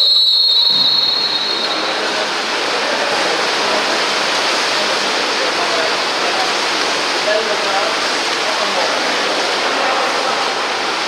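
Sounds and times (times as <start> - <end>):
referee's whistle blast: 0.0 - 2.0
pool water rushing: 0.0 - 11.0.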